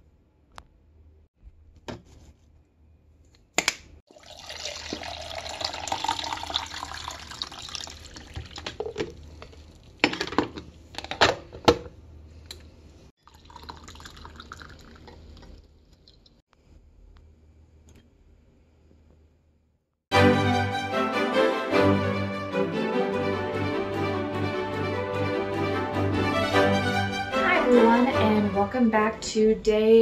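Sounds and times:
coffee pouring into a mug: 4.1 - 9.9, 13.2 - 16.3
liquid pouring and splashing: 4.1 - 10.0, 13.2 - 16.4.

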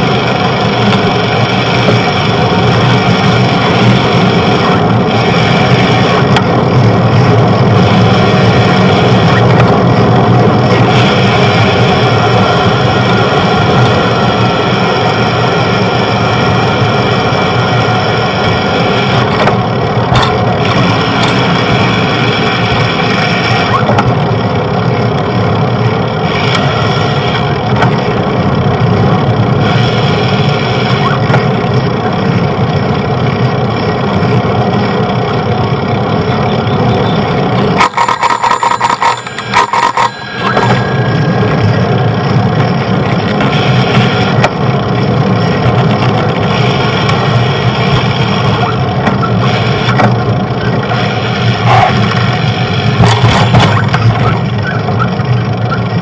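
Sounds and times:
street traffic noise: 0.0 - 56.0
bicycle bell ringing rapidly: 37.7 - 43.0.

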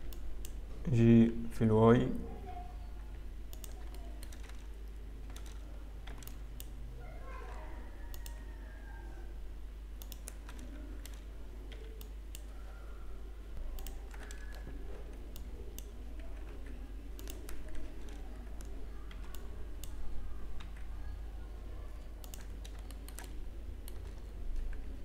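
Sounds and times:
steady low hum: 0.0 - 25.0
mouse clicks: 3.5 - 4.7, 8.1 - 8.4, 10.0 - 12.5, 13.6 - 16.5, 17.1 - 20.0, 22.2 - 24.2
keyboard keystrokes: 3.5 - 6.8, 8.1 - 8.4, 10.0 - 12.5, 13.7 - 20.9, 22.1 - 24.9.

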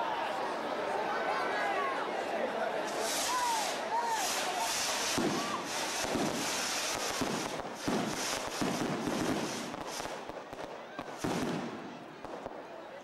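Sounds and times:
firework rockets hissing crackle: 2.9 - 12.5
firework bangs: 2.9 - 12.7.

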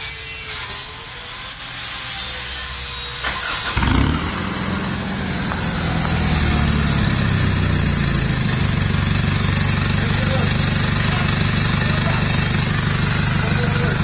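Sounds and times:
engine starting and idling: 3.2 - 14.0.

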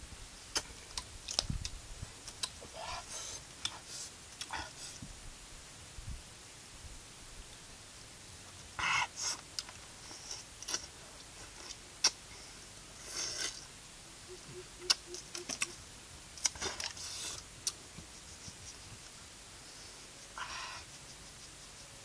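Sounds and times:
fruit snapping and clicking: 0.5 - 2.6.

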